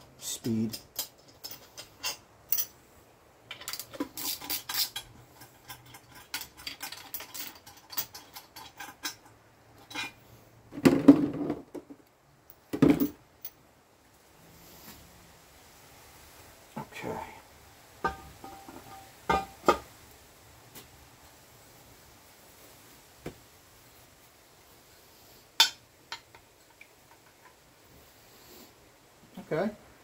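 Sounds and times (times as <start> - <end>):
metal tools clinking: 0.3 - 2.8, 3.5 - 10.2.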